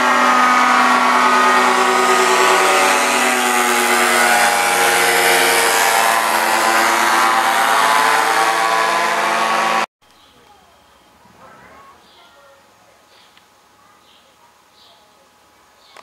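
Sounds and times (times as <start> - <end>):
paramotor engine buzzing drone: 0.0 - 9.9.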